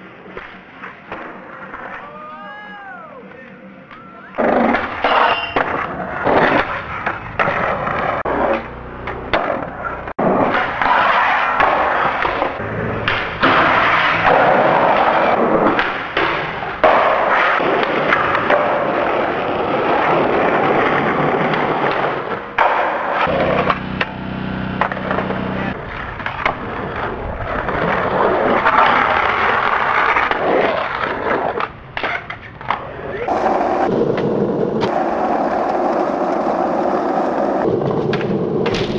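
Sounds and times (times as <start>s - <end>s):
skateboard wheels rolling on concrete: 0.0s - 38.9s
skateboard clacks popping and landing: 4.4s - 19.3s, 24.8s - 38.9s.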